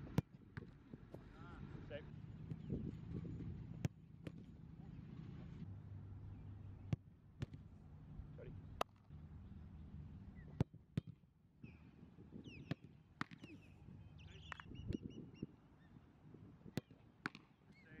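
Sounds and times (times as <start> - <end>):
soccer ball being kicked: 0.1 - 1.3, 2.4 - 4.5, 6.9 - 7.7, 10.5 - 11.2, 16.7 - 17.5
birds calling: 13.4 - 16.0.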